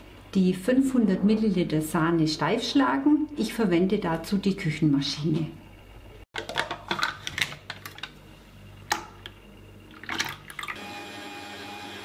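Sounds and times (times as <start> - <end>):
stand mixer motor whine: 10.8 - 12.0.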